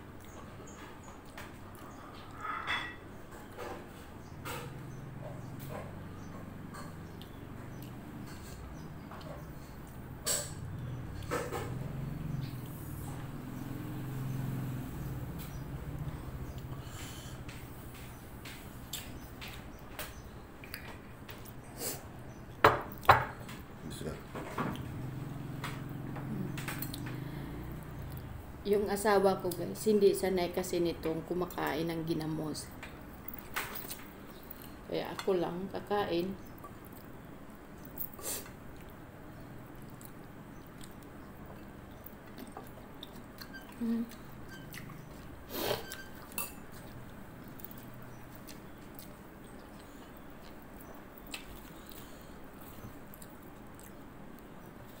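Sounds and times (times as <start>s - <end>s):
dishes clattering on wooden table: 2.2s - 4.8s, 22.6s - 23.6s
chewing: 4.6s - 23.6s, 24.3s - 28.5s, 32.8s - 34.9s, 36.4s - 55.0s
dishes tapping: 22.6s - 23.5s.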